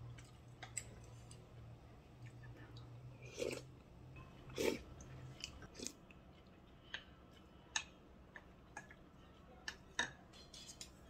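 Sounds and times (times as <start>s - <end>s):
faint clicks and taps while eating: 0.0s - 1.6s, 4.1s - 11.0s.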